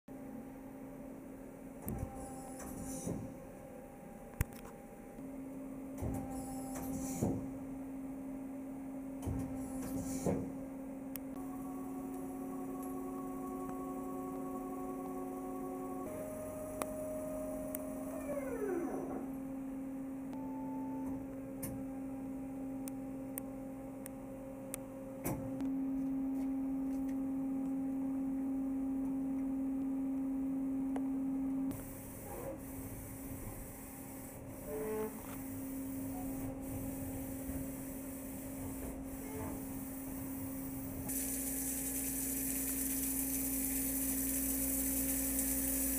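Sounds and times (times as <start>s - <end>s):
machine hum: 0.1s - 45.9s
machine whine falling in pitch: 11.4s - 22.3s
coolant hiss: 41.1s - 45.9s.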